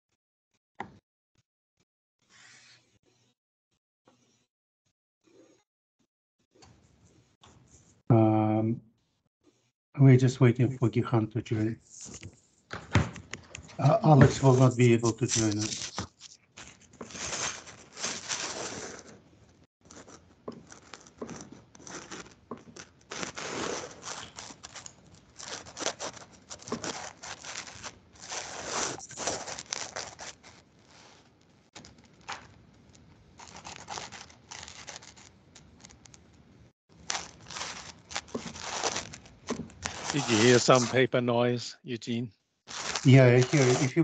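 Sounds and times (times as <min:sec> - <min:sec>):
paper rustling and crinkling: 0:13.4 - 0:19.2, 0:19.9 - 0:36.2, 0:37.0 - 0:41.0, 0:42.7 - 0:44.0.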